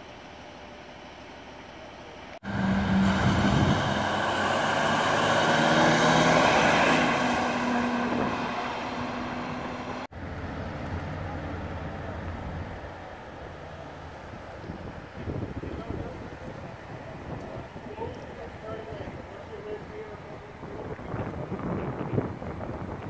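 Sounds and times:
steady traffic noise: 0.0 - 23.0
truck driving past: 2.4 - 15.0.

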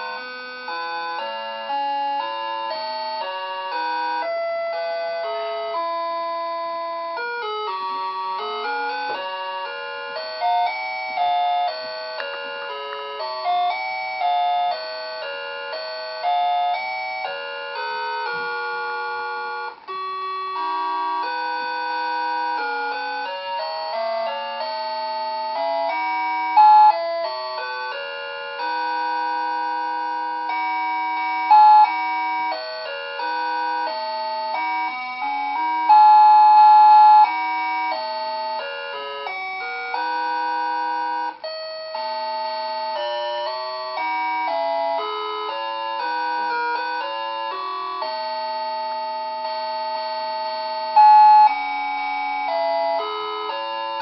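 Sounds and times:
electronic beeping melody: 35.1 - 37.9.

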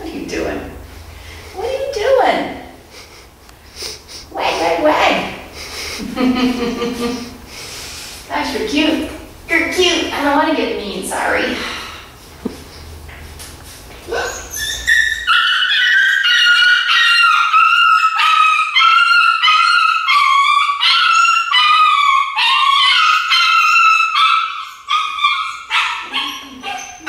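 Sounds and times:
puppy squealing and yelping: 14.1 - 27.0.

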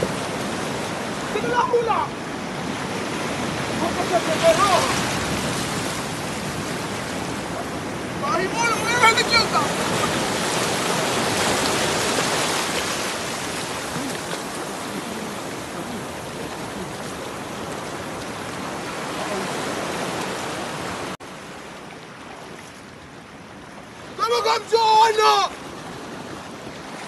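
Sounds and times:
surf breaking on rocky shore: 0.0 - 21.6
wind: 0.0 - 27.0.

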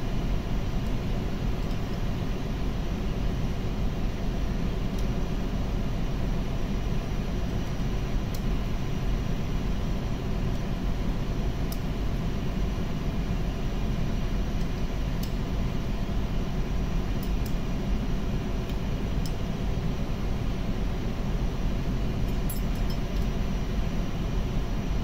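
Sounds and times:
tools clinking on metal: 22.3 - 23.3.

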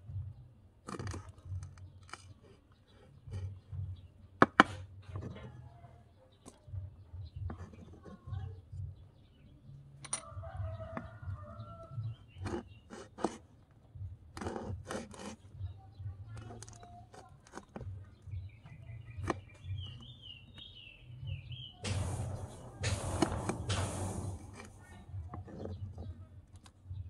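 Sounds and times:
rasping noise: 14.3 - 15.6, 21.8 - 26.2
birds calling: 15.1 - 26.2
low hum: 21.8 - 25.4.

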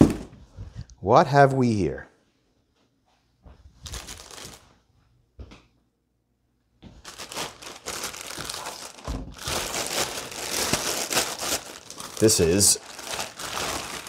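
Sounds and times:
plastic bag crinkling: 3.8 - 4.7, 7.0 - 14.0.

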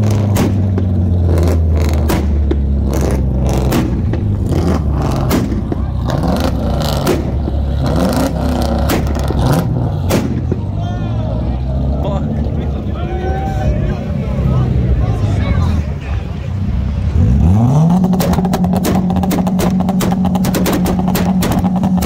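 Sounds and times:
exhaust pops and bangs: 0.0 - 10.8, 18.0 - 22.0
rev-limited engine drone: 0.0 - 22.0.

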